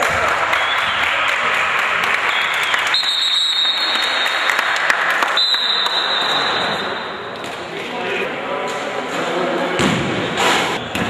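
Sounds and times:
spectators clapping: 0.0s - 6.7s.

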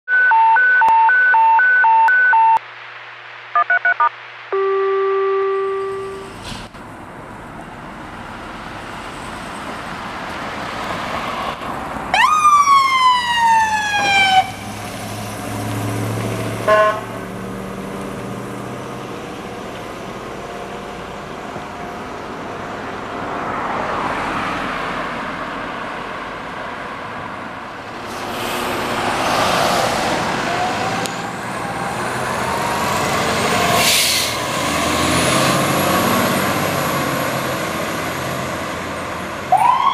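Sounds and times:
electronic siren wailing: 0.1s - 2.6s, 3.5s - 6.3s, 39.5s - 39.9s
siren blip: 0.1s - 2.6s, 3.5s - 6.4s
fire engine engine: 5.5s - 39.9s.

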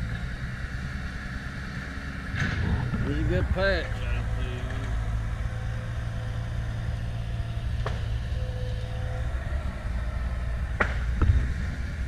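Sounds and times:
steady low rumble: 0.0s - 8.3s.

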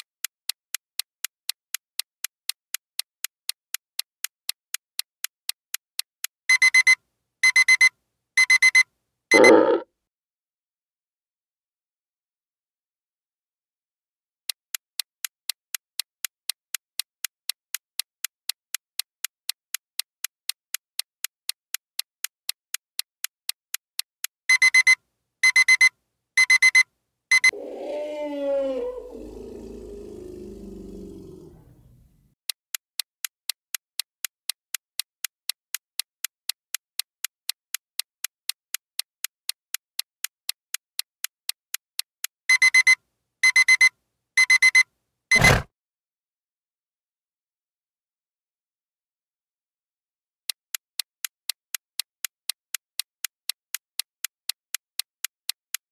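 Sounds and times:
clock ticking: 0.7s - 9.8s, 14.7s - 23.3s, 24.0s - 27.5s, 42.0s - 45.5s
elephant trumpeting: 9.3s - 9.8s, 27.5s - 31.9s.

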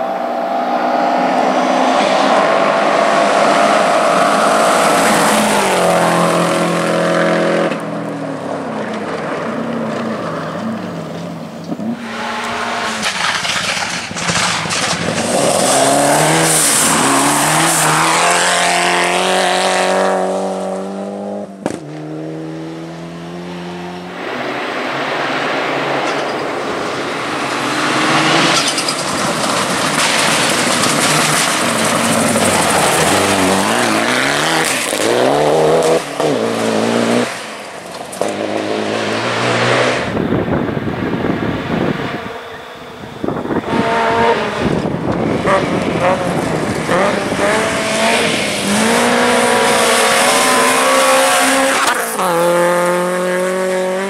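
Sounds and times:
rally car engines revving: 0.0s - 54.0s
gravel spraying: 11.9s - 18.6s, 24.2s - 35.2s.

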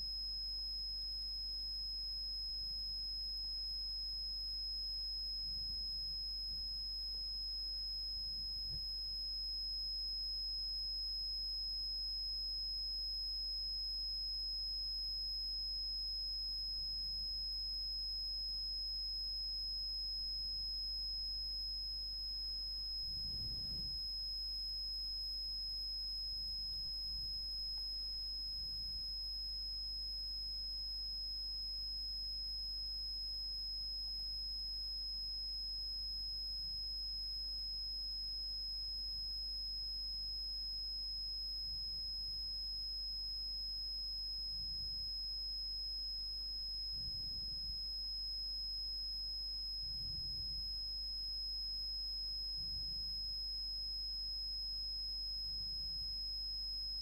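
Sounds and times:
high-pitched sine tone: 0.0s - 57.0s.

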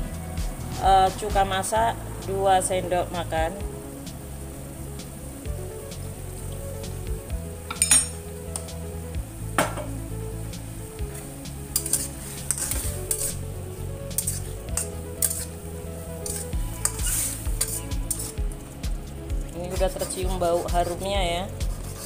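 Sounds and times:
food sizzling: 0.2s - 22.0s
knocks on wok: 9.6s - 10.0s
metal spatula scraping a wok: 11.1s - 13.5s, 14.1s - 15.6s, 16.2s - 18.4s.

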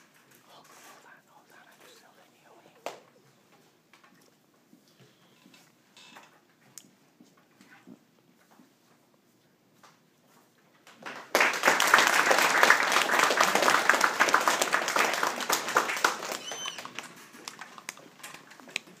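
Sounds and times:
audience applauding: 11.0s - 18.0s.

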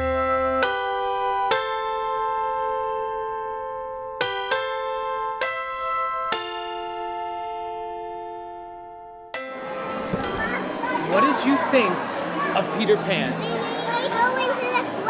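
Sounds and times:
slow keyboard chords: 0.0s - 11.2s.

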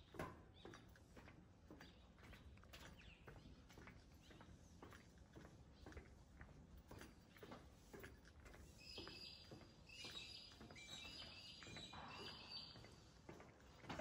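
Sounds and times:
faint footsteps on walkway: 0.0s - 14.0s
bird chirping: 8.8s - 12.9s.

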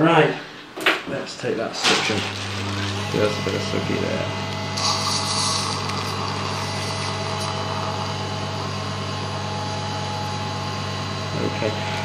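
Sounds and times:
motor hum: 1.8s - 12.0s
suction aspirator hissing: 2.2s - 9.3s.

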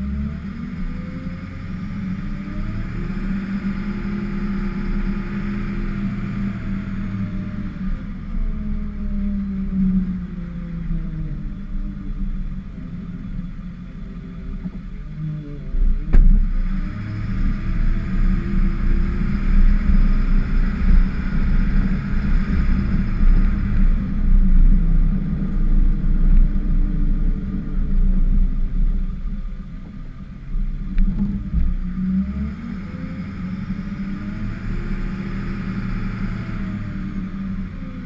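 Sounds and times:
truck engine revving under load: 0.0s - 11.1s, 11.9s - 38.0s.

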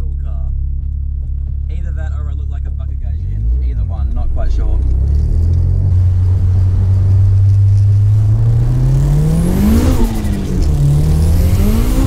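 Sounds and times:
car engine revving from inside cabin: 3.1s - 12.0s.

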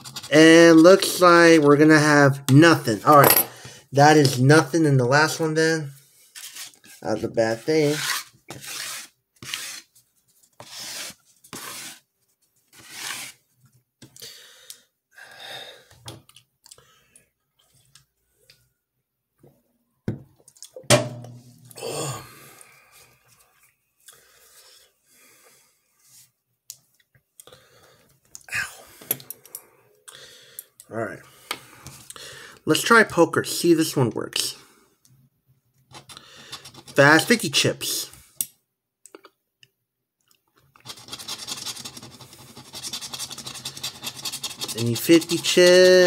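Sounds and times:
metal tool scraping ticket: 0.0s - 1.2s, 35.9s - 37.3s, 40.8s - 46.0s
person exhaling: 21.7s - 22.9s, 28.5s - 29.1s
person clearing throat: 21.8s - 22.3s.

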